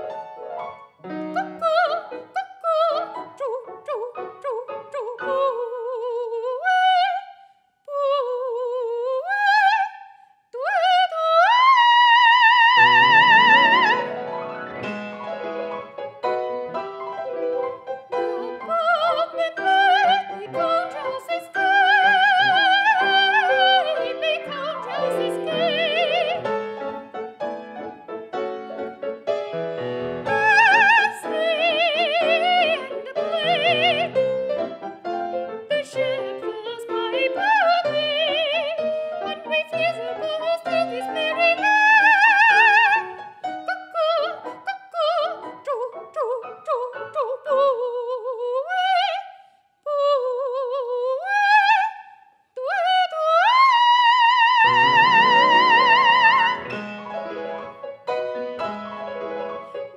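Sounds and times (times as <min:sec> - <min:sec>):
piano chords: 0:00.0 - 0:05.8, 0:12.3 - 0:47.6, 0:54.0 - 0:59.9
woman singing operatically: 0:01.3 - 0:14.2, 0:18.1 - 0:26.5, 0:30.3 - 0:34.2, 0:35.6 - 0:49.3, 0:49.9 - 0:56.8.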